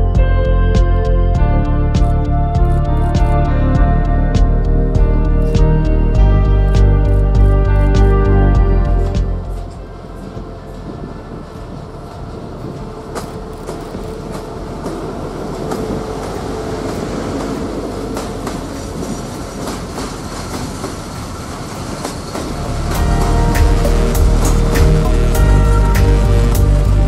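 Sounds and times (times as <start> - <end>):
freight train rumbling past: 3.5 - 27.0
train wheel clicks: 11.5 - 23.9.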